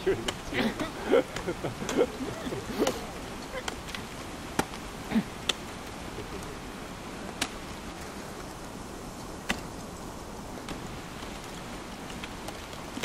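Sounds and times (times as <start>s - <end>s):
steady background hiss: 0.0s - 13.0s
ice axes striking ice: 3.6s - 5.6s, 9.4s - 9.7s.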